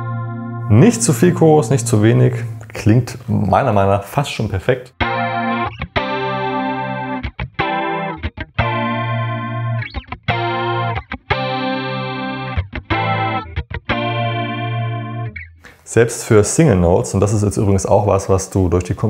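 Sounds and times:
clean electric guitar strumming chords: 0.0 - 3.8, 4.9 - 15.8.

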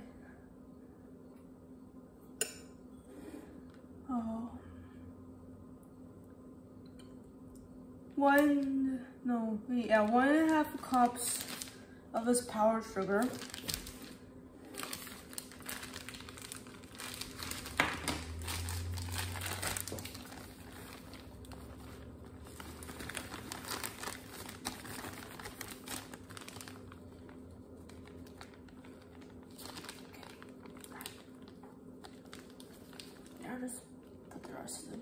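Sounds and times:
plastic bag crinkling: 9.8 - 33.8.

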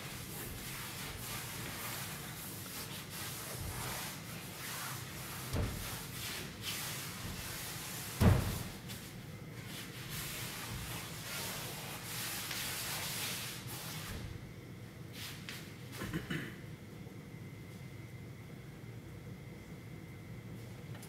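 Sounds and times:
dull thuds: 5.4 - 6.0, 8.1 - 8.9.

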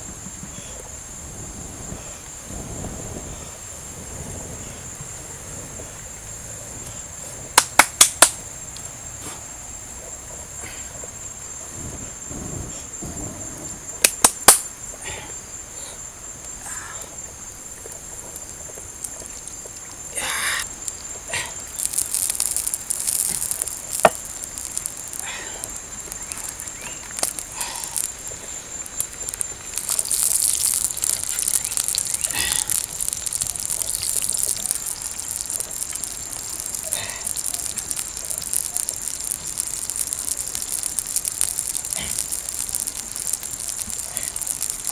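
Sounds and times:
insect chirring: 0.0 - 44.9
sharp loud clicks: 7.6 - 8.4, 14.0 - 14.7.

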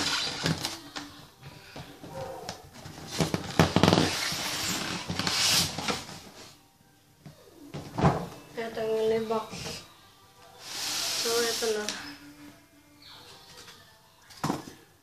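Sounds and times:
cardboard scraping on foam: 3.2 - 6.1.

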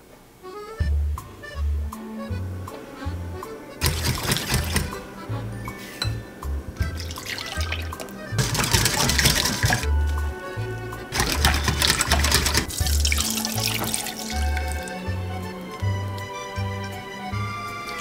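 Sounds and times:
music with steady bass line: 0.7 - 18.0
whisk beating in glass bowl: 3.8 - 5.0, 6.9 - 9.9, 11.2 - 14.8
milk pouring into bowl: 6.8 - 9.9, 11.2 - 15.0.

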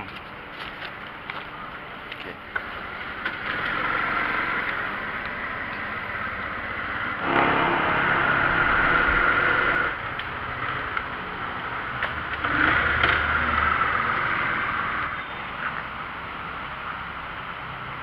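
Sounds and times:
motor scooter engine running: 2.6 - 10.9.

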